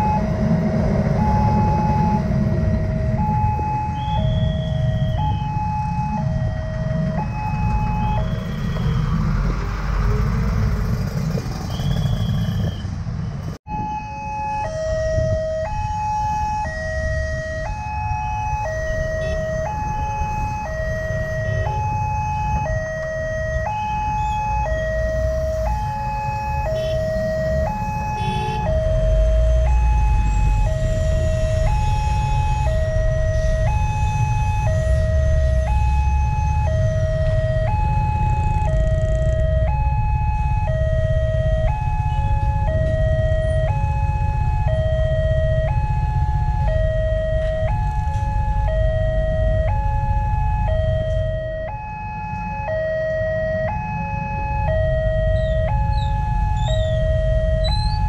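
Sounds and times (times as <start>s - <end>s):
low rumble: 0.0s - 8.7s
two-tone electronic warning siren: 0.0s - 10.7s, 13.7s - 58.0s.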